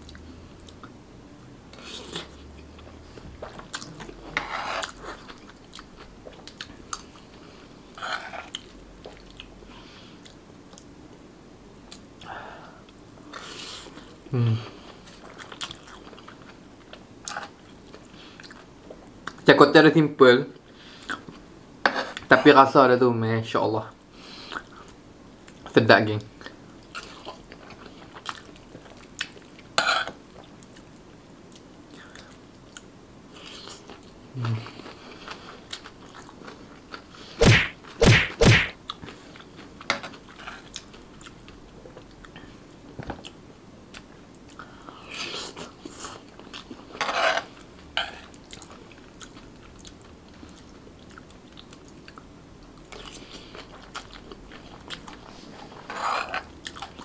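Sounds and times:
loud sharp bursts: 37.4s - 38.8s
chewing noodles: 43.2s - 57.0s.

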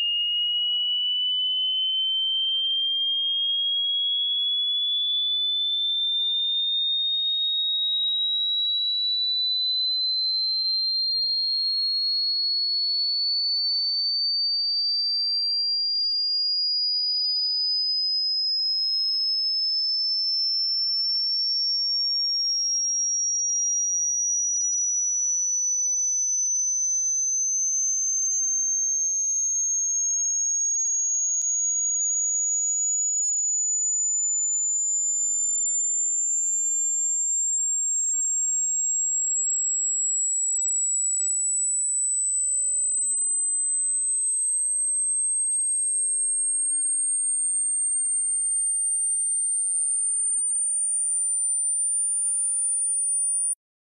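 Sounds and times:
rising electronic sine tone: 23.9s - 53.6s.

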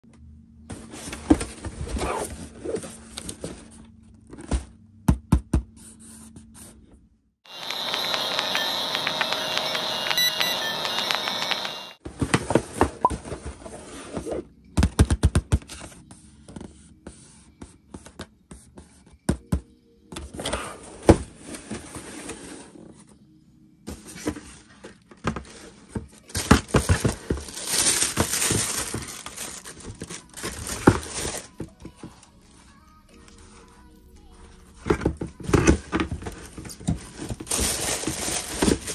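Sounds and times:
tissue paper rustling: 25.4s - 32.8s, 35.6s - 38.9s.

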